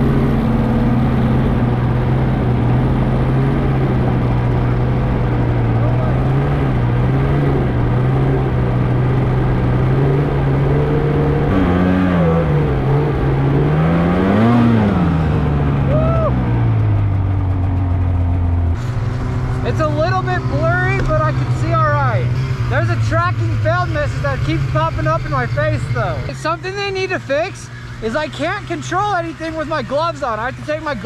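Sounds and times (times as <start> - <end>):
snowmobile engine running: 0.0 - 31.0.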